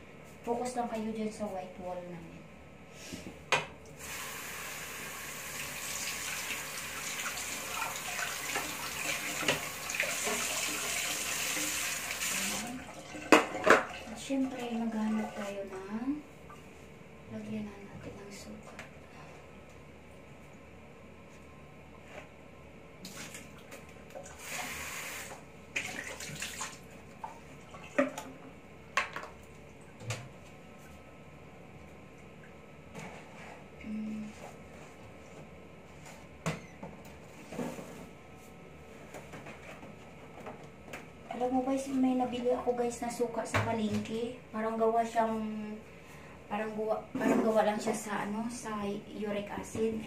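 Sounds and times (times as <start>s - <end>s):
tap water running into sink: 4.0s - 14.0s.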